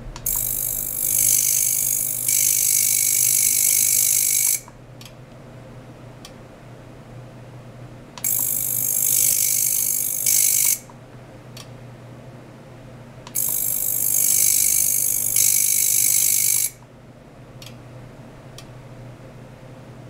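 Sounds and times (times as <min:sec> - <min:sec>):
high-pitched hissing buzz: 0:00.0 - 0:02.2
low steady hum: 0:00.0 - 0:02.3.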